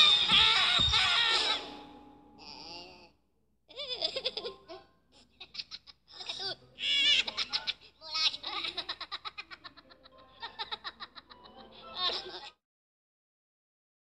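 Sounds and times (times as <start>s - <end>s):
high squeaky cartoon laughter: 0.0s - 1.8s, 3.7s - 12.6s.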